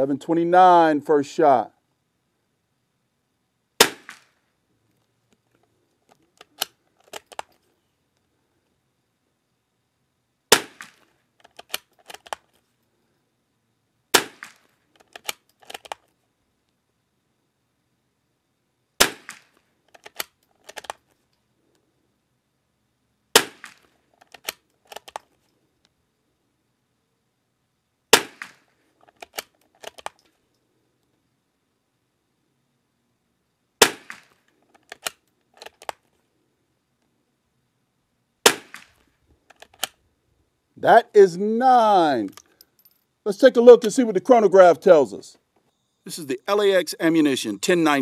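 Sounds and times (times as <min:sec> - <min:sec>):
rifle shot crack: 0:03.8 - 0:04.3, 0:10.5 - 0:11.0, 0:14.1 - 0:14.7, 0:19.0 - 0:19.6, 0:23.3 - 0:23.9, 0:28.1 - 0:28.7, 0:33.8 - 0:34.4, 0:38.4 - 0:39.0
sharp clicks: 0:06.1 - 0:07.6, 0:10.7 - 0:12.5, 0:14.2 - 0:16.1, 0:19.2 - 0:21.0, 0:23.6 - 0:25.3, 0:28.4 - 0:30.3, 0:34.1 - 0:36.1, 0:38.5 - 0:40.0.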